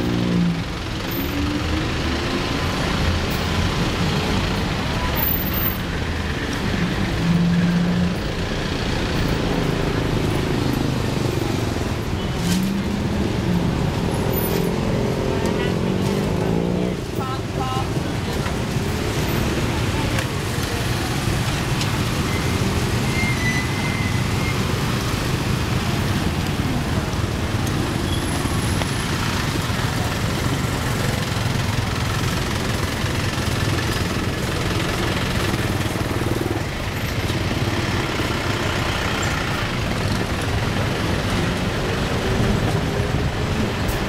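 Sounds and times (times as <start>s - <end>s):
street traffic rumble: 0.0s - 44.0s.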